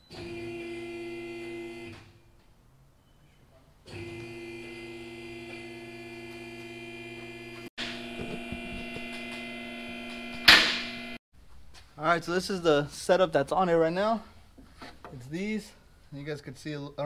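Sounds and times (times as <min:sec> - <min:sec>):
hydraulic lift motor humming: 0:03.9 - 0:11.2.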